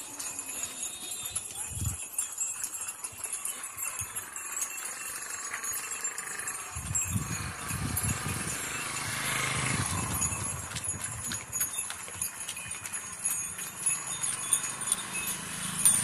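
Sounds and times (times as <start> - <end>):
cattle bells jingling: 0.0 - 16.0
hooves clattering on road: 0.0 - 16.0.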